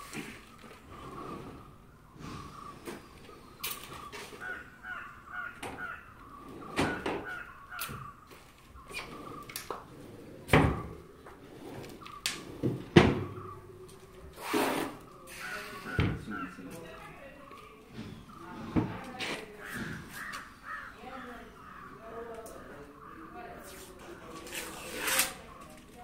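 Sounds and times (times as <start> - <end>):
crows cawing: 2.4 - 9.6, 15.3 - 16.8, 19.5 - 23.6.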